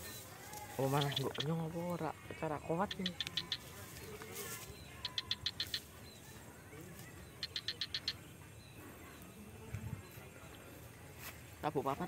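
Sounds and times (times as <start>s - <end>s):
small animal chirping: 0.8s - 2.1s, 2.7s - 9.4s.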